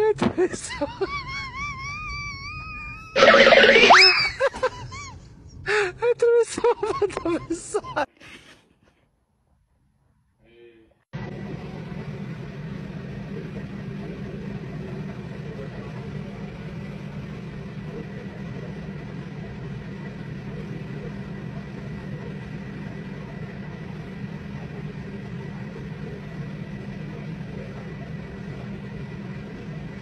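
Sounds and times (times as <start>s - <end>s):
low mechanical hum: 0.0s - 30.0s
thin high steady tone: 3.2s - 4.4s.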